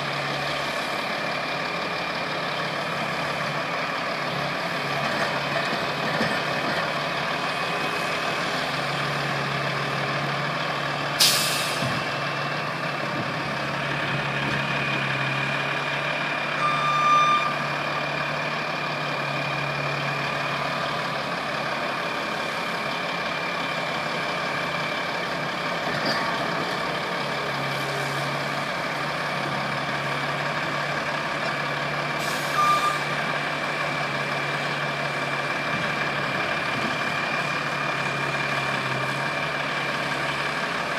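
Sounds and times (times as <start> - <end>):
loader and truck engines running: 0.0 - 40.9
short beeps: 16.6 - 17.6, 32.6 - 33.0.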